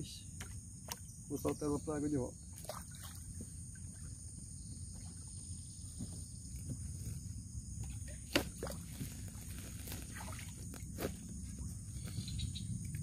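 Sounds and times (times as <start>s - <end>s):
low background rumble: 3.2s - 13.0s.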